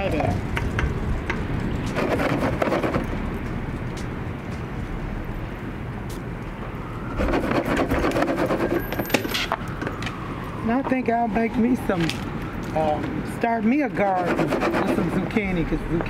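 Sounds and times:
low outdoor rumble: 0:03.0 - 0:07.1.

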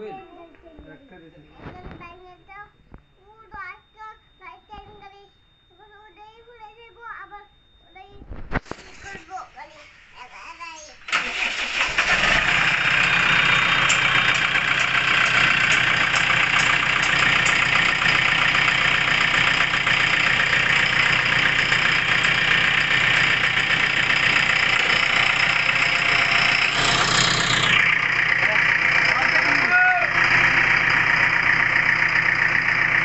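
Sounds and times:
diesel engine idling: 0:11.1 - 0:33.0.

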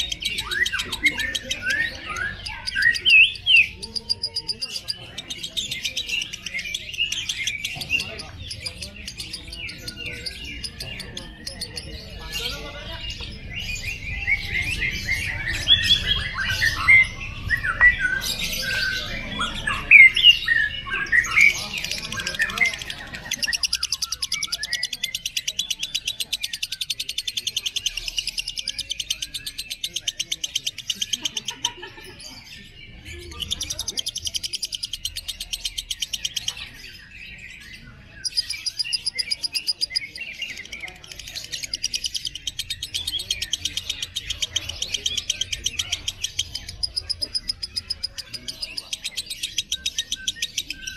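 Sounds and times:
lovebird shrill chattering: 0:21.2 - 0:31.6, 0:38.2 - 0:50.9.

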